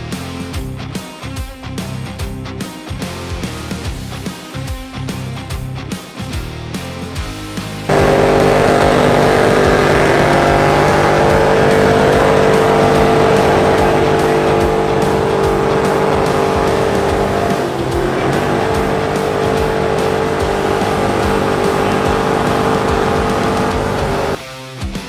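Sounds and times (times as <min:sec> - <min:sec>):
car engine revving high: 0:07.9 - 0:24.4.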